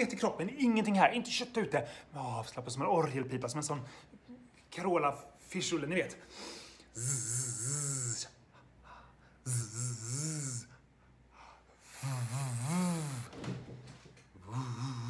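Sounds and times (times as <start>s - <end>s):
man humming a buzzing consonant: 6.9s - 8.4s, 9.4s - 10.8s, 11.9s - 13.3s, 14.4s - 15.0s.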